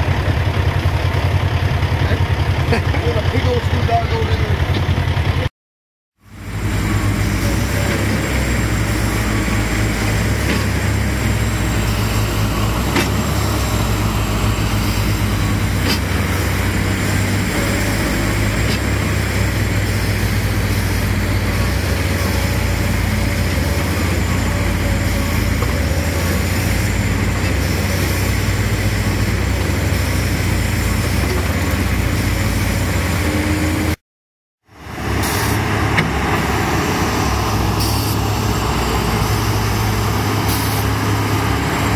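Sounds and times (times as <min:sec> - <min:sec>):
heavy diesel engines under load: 0:00.0 - 0:05.5, 0:06.2 - 0:34.0, 0:34.6 - 0:41.9.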